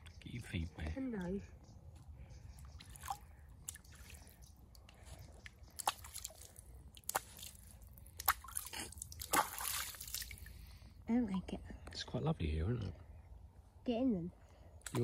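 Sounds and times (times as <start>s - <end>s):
feet splashing in shallow water: 2.8s - 4.4s, 5.4s - 10.5s.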